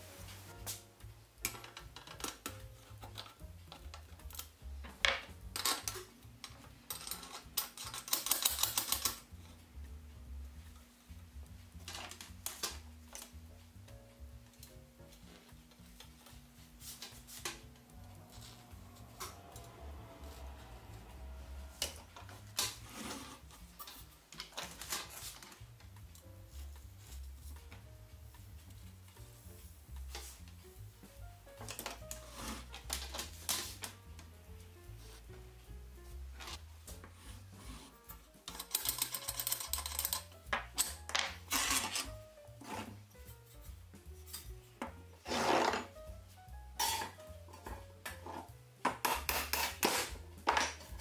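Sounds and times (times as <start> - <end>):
small metal clinks and knocks: 5.5 - 9.2, 38.4 - 41.4.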